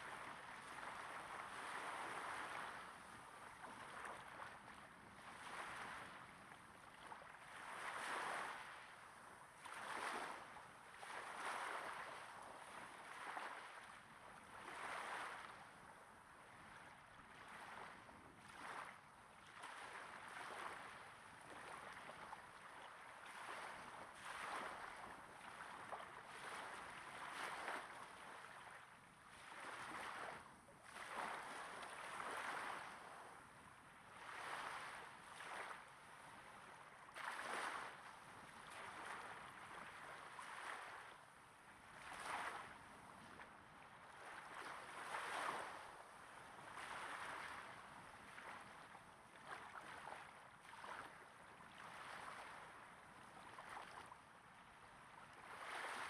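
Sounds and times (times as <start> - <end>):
small waves breaking on sand: 0.0 - 56.0.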